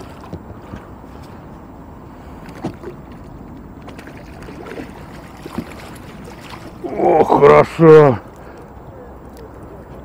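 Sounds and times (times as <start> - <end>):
wind and water hiss: 0.0 - 10.0
water splashing: 2.2 - 8.7.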